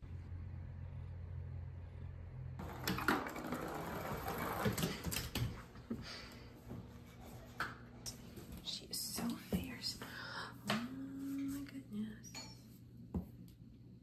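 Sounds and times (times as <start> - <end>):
low steady hum: 0.0 - 14.0
toy skittering across floor: 2.6 - 5.6.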